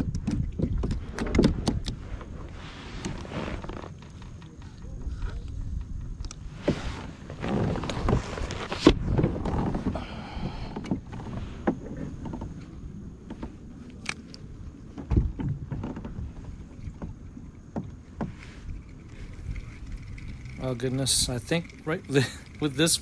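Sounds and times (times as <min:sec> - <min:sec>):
water sloshing: 0:15.6 - 0:23.0.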